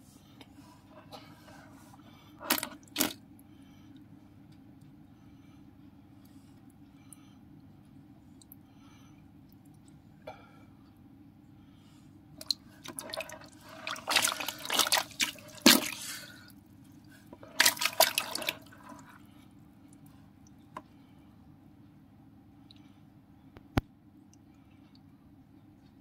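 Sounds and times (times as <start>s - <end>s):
water splashing in a tub: 2.4s - 3.2s, 12.4s - 16.4s, 17.4s - 19.2s.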